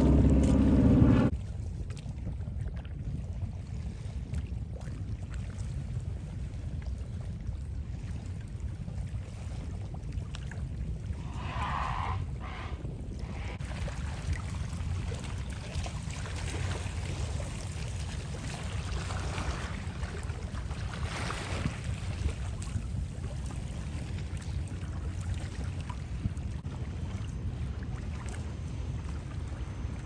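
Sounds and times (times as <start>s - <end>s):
low rumble: 0.0s - 1.4s, 11.0s - 13.8s.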